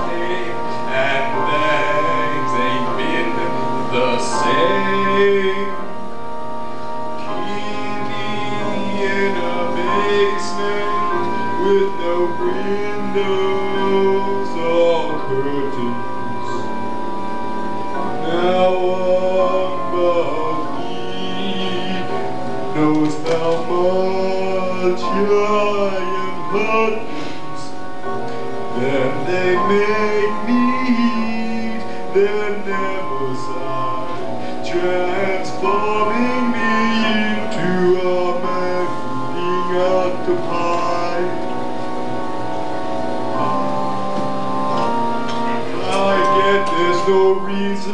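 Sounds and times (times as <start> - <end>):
opera singing with vibrato: 0.0 - 5.9, 45.7 - 47.9
held accompaniment chords: 0.0 - 47.9.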